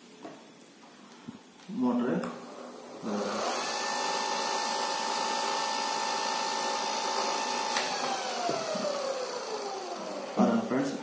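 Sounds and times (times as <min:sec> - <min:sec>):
electric motor whine: 0:02.3 - 0:10.8.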